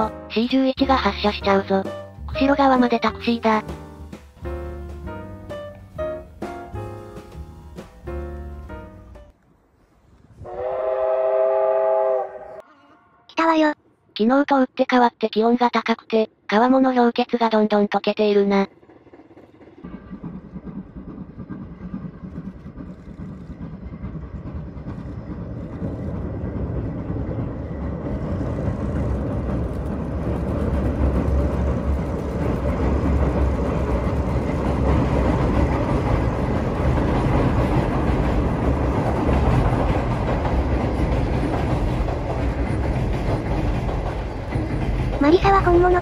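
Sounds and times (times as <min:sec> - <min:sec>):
steam locomotive rumbling past: 0:10.3 - 0:12.6, 0:18.6 - 0:46.0.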